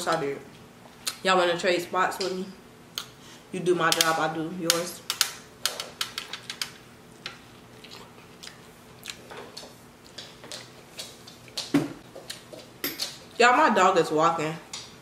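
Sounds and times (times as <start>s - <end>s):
chewing corn on the cob: 7.6s - 9.3s.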